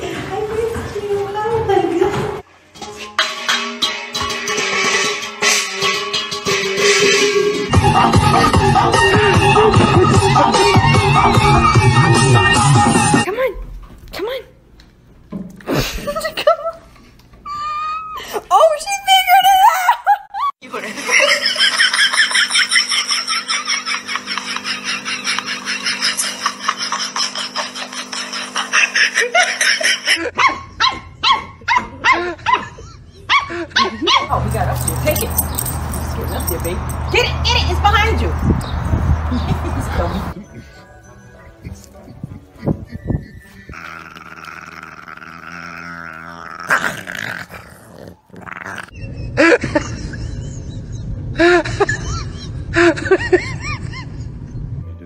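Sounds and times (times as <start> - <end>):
dogs growling and yelping: 22.4 - 37.0, 40.6 - 49.9.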